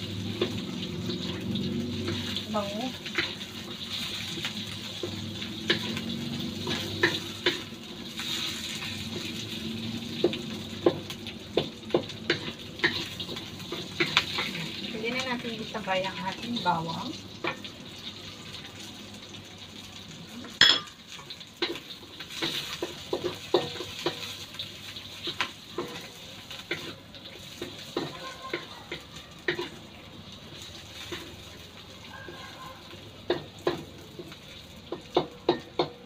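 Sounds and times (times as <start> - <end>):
onion and garlic sizzling in oil: 0.0 - 36.0
wooden spatula scraping a pan: 21.2 - 29.8.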